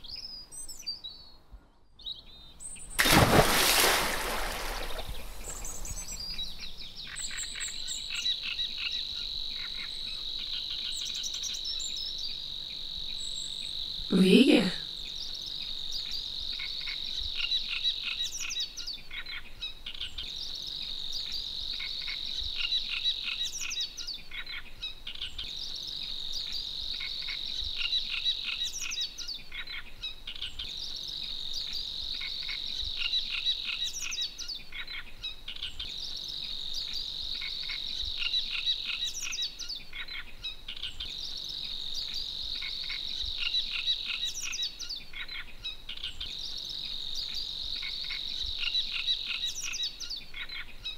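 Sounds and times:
birds chirping: 2.1s - 8.8s.

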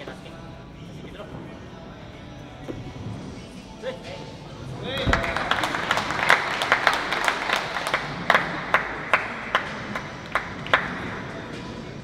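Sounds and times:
small group clapping: 5.0s - 11.3s.

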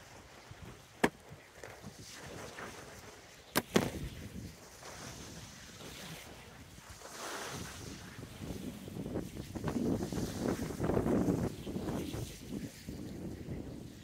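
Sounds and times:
small waves on stony shore: 0.0s - 13.5s
wind on microphone: 3.6s - 14.0s.

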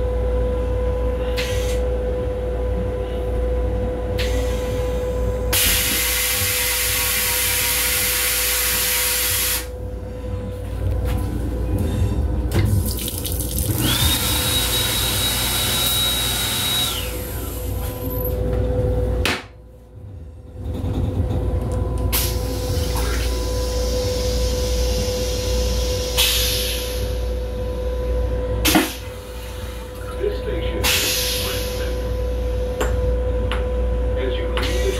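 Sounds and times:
railcar electrical hum: 0.0s - 34.9s
toilet flushing: 5.5s - 9.7s, 12.5s - 18.0s
sink faucet running: 12.7s - 15.8s.

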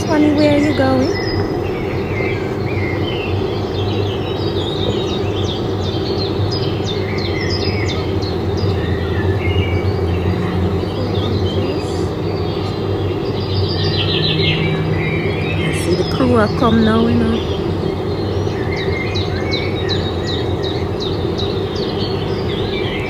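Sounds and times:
low background rumble: 0.0s - 23.0s
small birds chirping: 0.0s - 23.0s.

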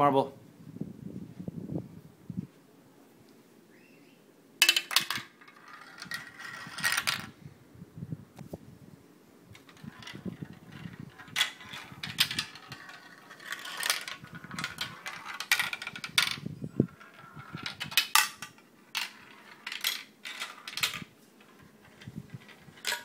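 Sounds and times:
marble clattering down a marble run: 4.6s - 7.3s, 9.6s - 23.0s.

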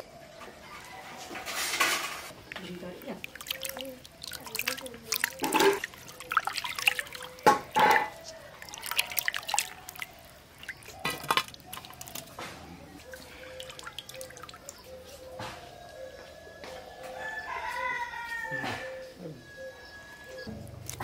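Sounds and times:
water sloshing and splashing: 0.6s - 15.9s, 20.5s - 21.0s.

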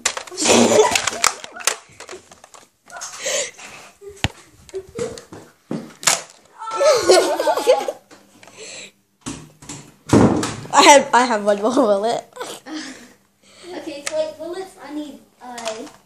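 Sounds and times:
toy blaster clicks and knocks: 0.0s - 2.6s, 15.5s - 16.0s
children shouting excitedly: 6.5s - 7.4s.

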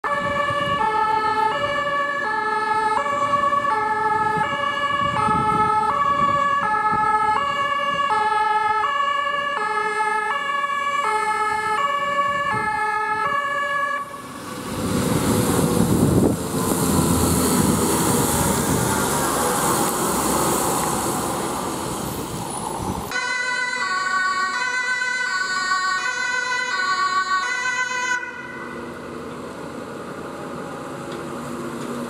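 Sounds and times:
two-tone fire siren: 0.0s - 14.4s, 23.1s - 29.0s
truck engine passing: 13.4s - 23.8s, 26.5s - 32.0s
tyres hissing on wet road: 14.1s - 23.1s.

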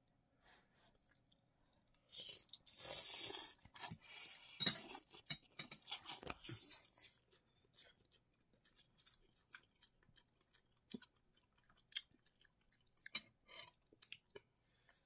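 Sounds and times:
person slurping noodles: 2.1s - 5.0s.

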